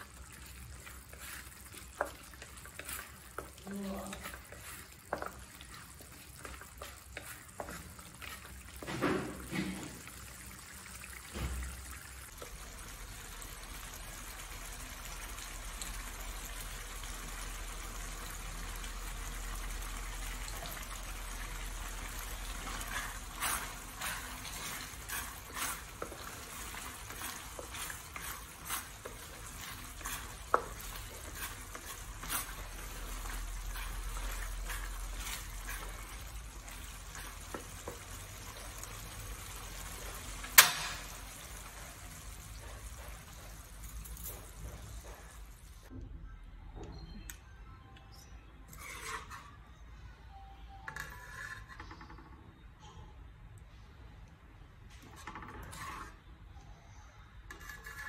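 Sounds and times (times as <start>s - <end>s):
spatula scraping pan: 0.0s - 10.6s, 19.4s - 43.7s, 48.7s - 49.8s, 50.9s - 52.2s, 55.1s - 56.3s, 57.5s - 58.0s
thick sauce simmering: 0.0s - 45.9s
wooden spatula stirring: 0.0s - 45.9s, 55.0s - 56.3s, 57.5s - 58.0s.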